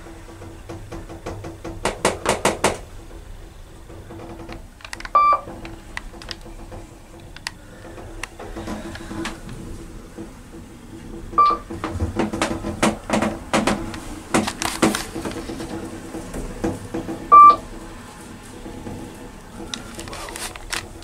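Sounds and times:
creaks and clicks: 0:00.0 - 0:21.0
elevator car humming: 0:00.0 - 0:21.0
short electronic beeps: 0:05.2 - 0:05.4, 0:17.3 - 0:17.6.

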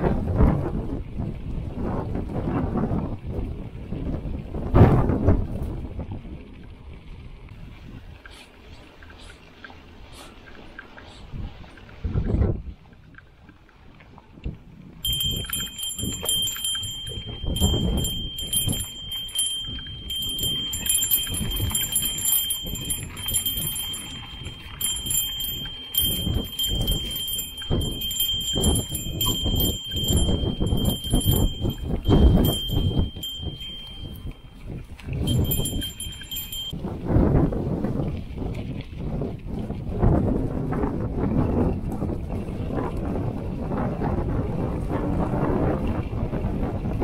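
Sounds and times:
wind on microphone: 0:00.0 - 0:47.0
high-pitched ringing tone: 0:15.0 - 0:34.6, 0:35.2 - 0:36.8.

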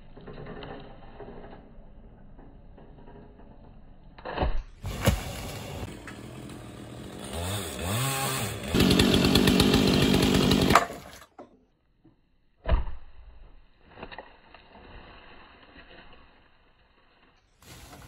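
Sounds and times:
chainsaw revving and cutting wood: 0:04.8 - 0:11.4.

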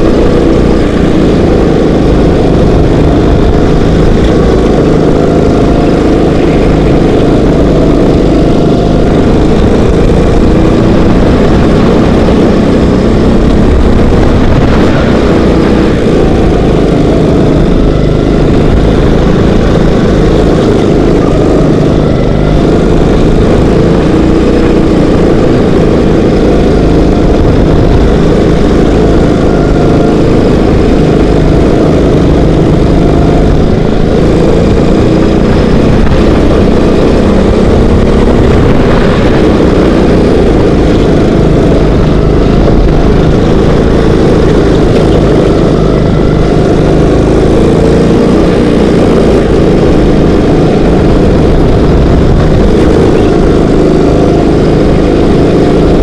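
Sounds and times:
kart engine racing: 0:00.0 - 0:56.0.

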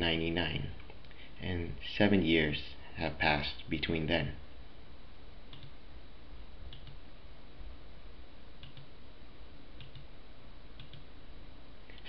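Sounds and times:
steady background hiss: 0:00.0 - 0:12.0
computer mouse clicks: 0:05.5 - 0:05.8, 0:06.7 - 0:07.0, 0:08.6 - 0:08.9, 0:09.8 - 0:10.1, 0:10.8 - 0:11.1.

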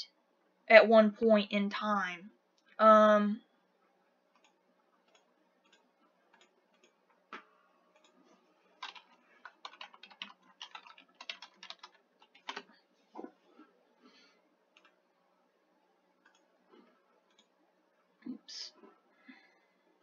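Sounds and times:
computer keyboard typing: 0:04.4 - 0:07.0, 0:08.8 - 0:12.7.

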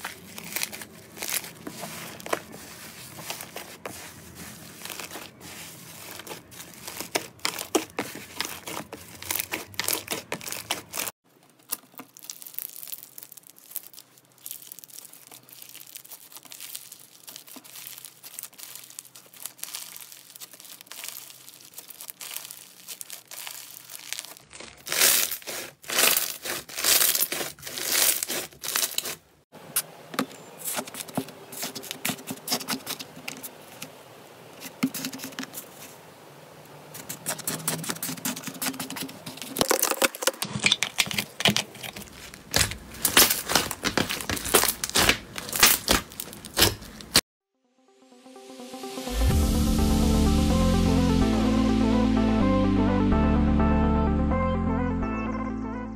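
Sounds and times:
slime crackling and popping: 0:00.0 - 0:02.6, 0:04.7 - 0:29.2, 0:37.3 - 0:47.2
hands squishing slime: 0:00.0 - 0:29.2, 0:40.9 - 0:47.2.

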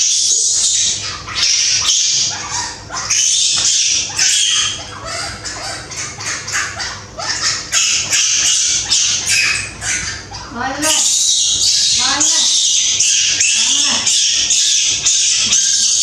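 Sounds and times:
baby monkey shrieking: 0:00.0 - 0:16.0.

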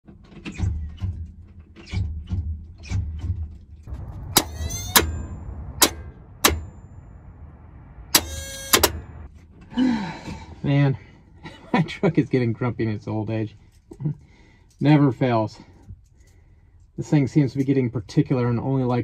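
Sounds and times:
dull low thumps: 0:03.9 - 0:09.3
starter motor metallic clicks: 0:08.2 - 0:09.2.

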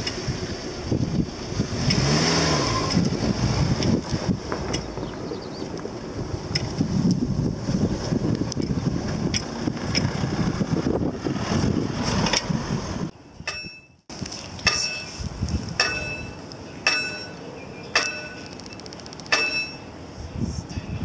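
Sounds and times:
car passing: 0:00.0 - 0:13.1
wind buffeting microphone: 0:00.0 - 0:17.3, 0:19.9 - 0:21.0
railway crossing bell striking: 0:13.4 - 0:13.9, 0:14.7 - 0:15.2, 0:15.8 - 0:18.5, 0:19.3 - 0:19.9.

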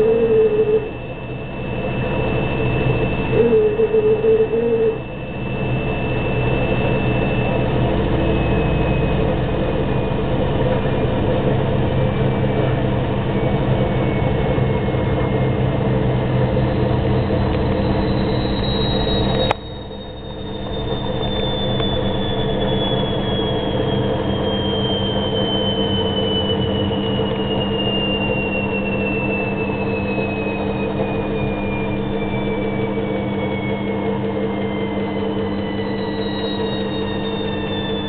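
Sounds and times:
washing machine hum: 0:00.0 - 0:05.2
thin high whistle: 0:00.0 - 0:10.2, 0:16.7 - 0:38.0
wavering whine: 0:00.0 - 0:38.0.

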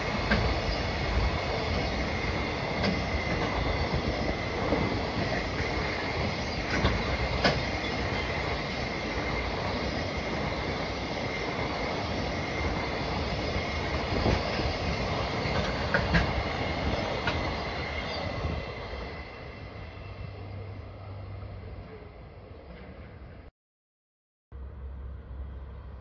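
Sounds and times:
wheels clacking over rail joints: 0:00.0 - 0:18.6
train wheels rumbling on rail: 0:00.0 - 0:23.5.

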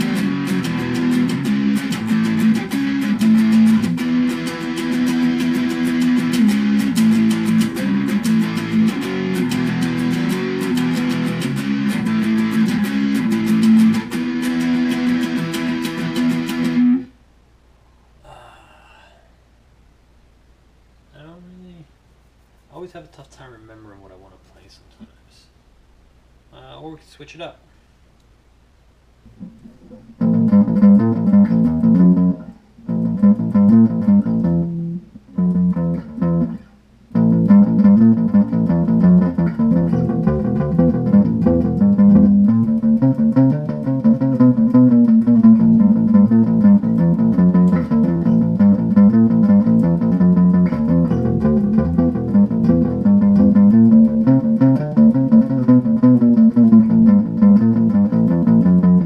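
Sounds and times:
electric string instrument riff: 0:00.0 - 0:17.1, 0:29.3 - 0:59.0.

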